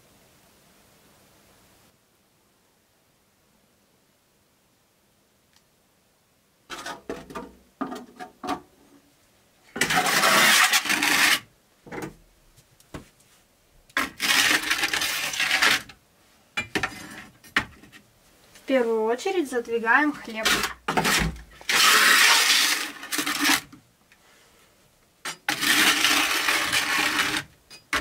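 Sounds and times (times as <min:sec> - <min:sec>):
tray scraping on hearth: 0:09.8 - 0:11.5, 0:14.0 - 0:15.9, 0:16.6 - 0:17.5, 0:20.2 - 0:23.7, 0:25.3 - 0:28.0.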